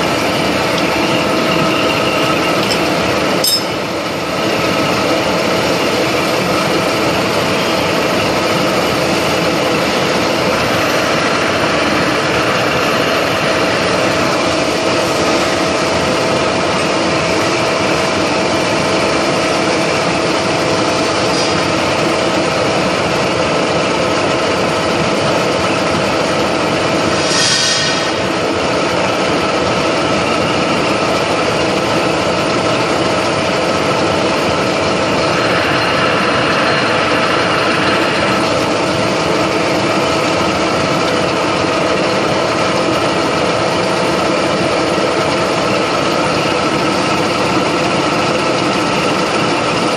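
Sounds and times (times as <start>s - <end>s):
milling machine running: 0.0s - 49.9s.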